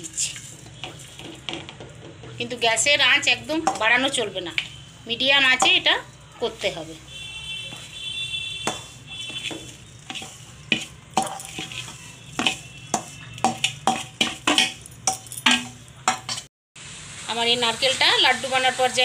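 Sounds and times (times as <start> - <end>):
metal spatula scraping a pan: 3.5 - 16.5.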